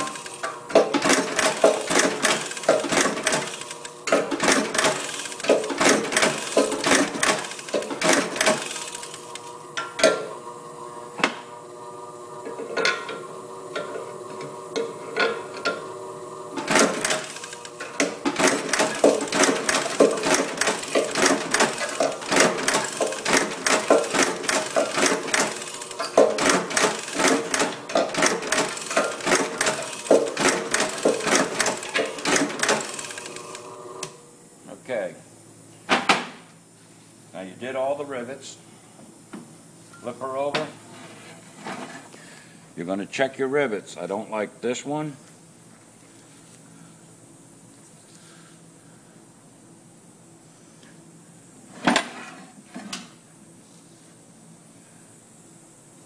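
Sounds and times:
riveting machine clacking: 0.0s - 10.3s, 16.6s - 33.6s
machine humming: 0.0s - 35.7s.

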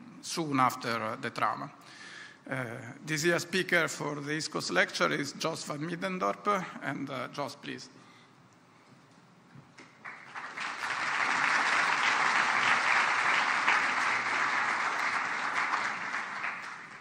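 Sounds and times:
large audience applauding: 10.0s - 17.0s.

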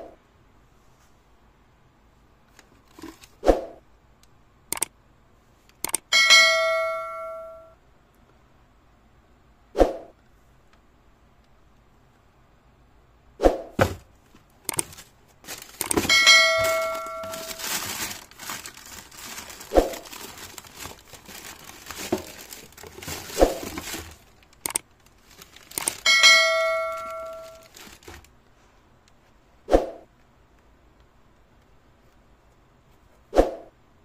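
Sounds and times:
bell-like ringing tone: 6.1s - 7.8s, 16.1s - 17.5s, 26.1s - 27.6s
box and packaging knocks: 13.8s - 14.1s, 15.9s - 17.4s
paper rustling: 13.8s - 28.3s.

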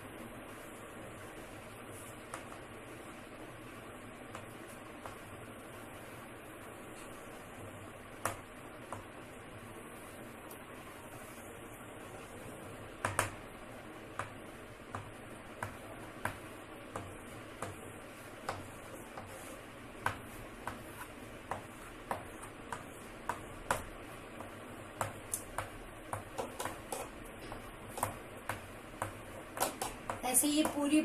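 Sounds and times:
chalk tapping on blackboard: 14.1s - 30.9s.

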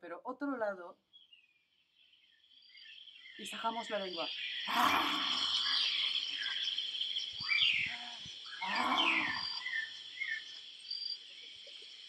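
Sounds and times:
insects chirring: 0.0s - 12.0s
people mock roaring: 4.7s - 5.8s, 7.9s - 9.6s.

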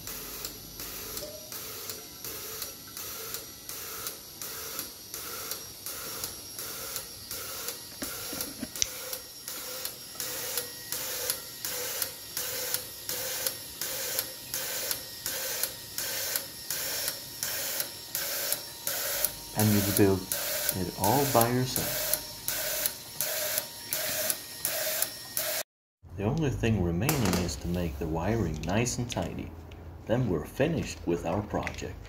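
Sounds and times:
electric fuel pump running: 0.0s - 25.6s
fuel injectors clicking and hissing: 0.0s - 25.6s.

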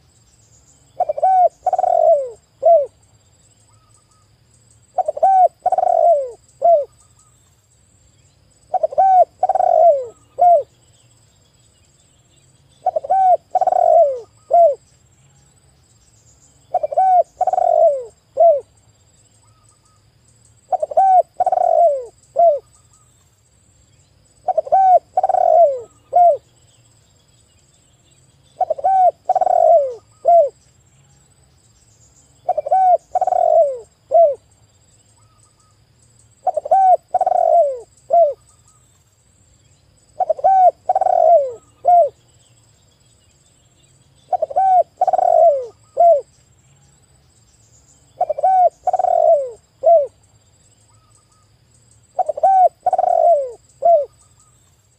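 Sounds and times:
dove cooing: 1.0s - 3.0s, 4.9s - 6.9s, 8.7s - 10.7s, 12.8s - 14.8s, 16.7s - 18.7s, 20.7s - 22.7s, 24.4s - 26.5s, 28.6s - 30.6s, 32.4s - 34.4s, 36.4s - 38.4s, 40.2s - 42.2s, 44.3s - 46.3s, 48.2s - 50.2s, 52.2s - 54.2s.

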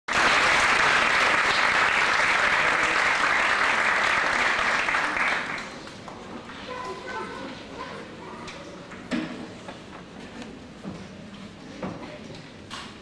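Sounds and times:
audience applauding: 0.1s - 5.8s.

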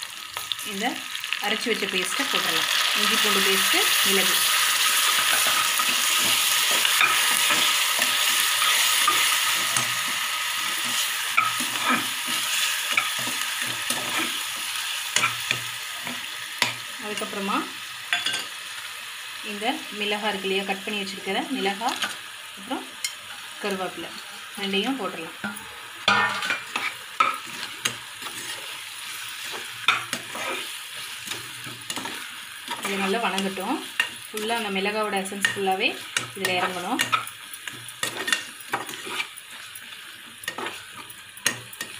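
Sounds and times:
onions sizzling in hot oil: 0.0s - 41.9s
metal spatula scraping pot: 4.0s - 17.3s, 25.4s - 34.5s, 35.2s - 39.7s, 40.4s - 41.9s
metal ladle scraping pan: 25.4s - 33.2s.

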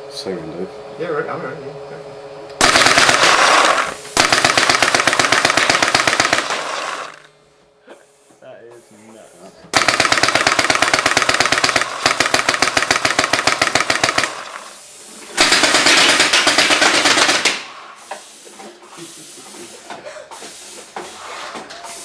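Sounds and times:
paintball markers firing bursts: 2.6s - 7.3s, 9.7s - 14.8s, 15.4s - 17.8s.

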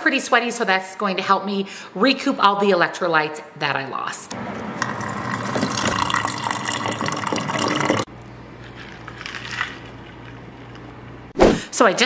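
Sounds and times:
water filling a metal bottle: 4.8s - 8.1s.

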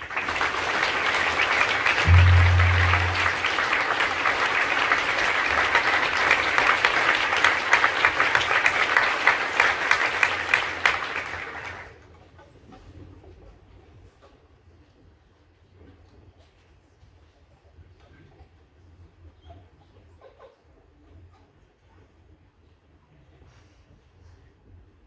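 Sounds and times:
audience applauding: 0.0s - 11.9s
loud low steady tone: 2.0s - 4.0s.

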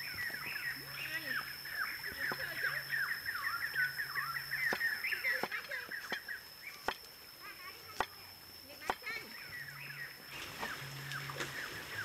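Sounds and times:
birds chirping: 0.0s - 12.0s
cleaver tapping wooden board: 4.7s - 7.1s.

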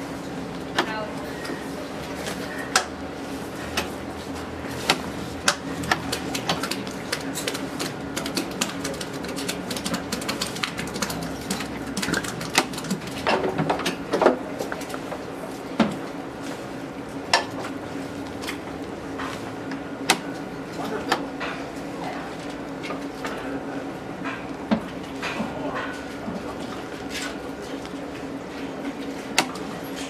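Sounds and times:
cows crunching and chewing feed: 1.3s - 16.1s.

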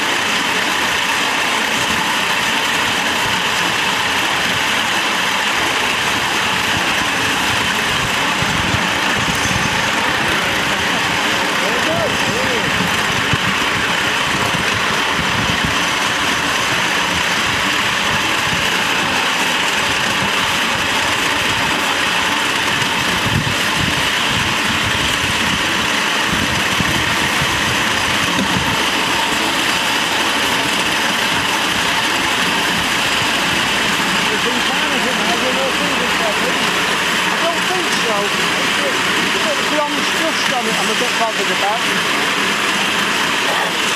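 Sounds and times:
train wheels rolling on track: 0.0s - 43.9s
wind buffeting microphone: 6.5s - 19.2s, 22.6s - 29.3s.

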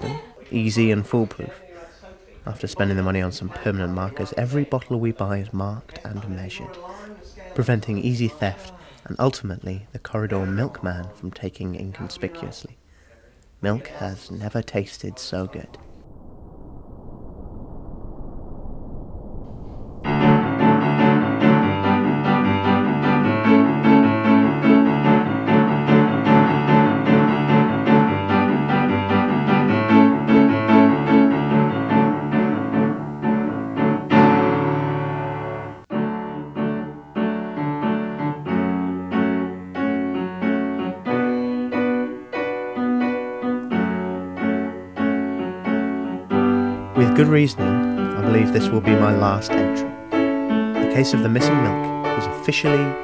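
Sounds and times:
background piano music: 20.0s - 53.0s.

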